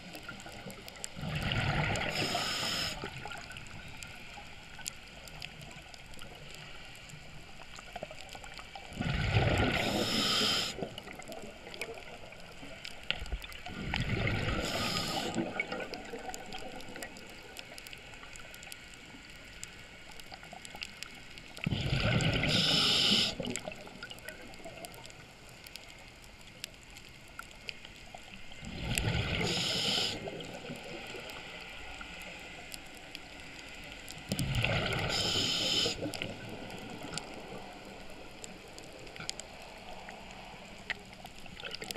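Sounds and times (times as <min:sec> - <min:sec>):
bubbly exhaled air gurgles: 0:00.0 - 0:03.7, 0:08.8 - 0:12.6, 0:13.4 - 0:17.7, 0:21.6 - 0:25.0, 0:28.6 - 0:31.3, 0:34.3 - 0:38.3
steady low hiss: 0:00.0 - 0:41.6.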